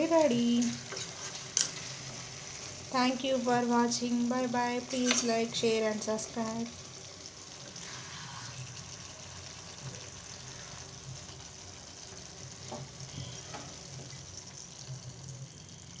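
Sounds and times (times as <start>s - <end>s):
curry sizzling in a pan: 0.0s - 16.0s
spatula stirring: 0.6s - 2.8s, 4.9s - 5.5s.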